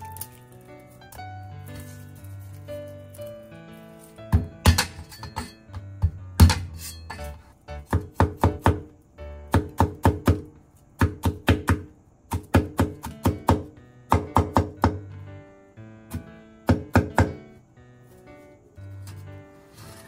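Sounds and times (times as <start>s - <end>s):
soft background music: 0.0s - 20.0s
cleaver knocking on cutting board: 4.3s - 5.0s, 5.7s - 6.6s.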